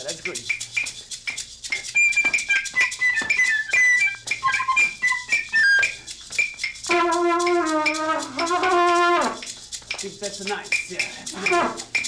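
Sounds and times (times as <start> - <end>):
shaker rattling clicks: 0.0 - 12.0
toy whistle tooting: 1.7 - 9.5, 11.3 - 12.0
low wavering horn note: 6.9 - 9.5, 11.4 - 12.0.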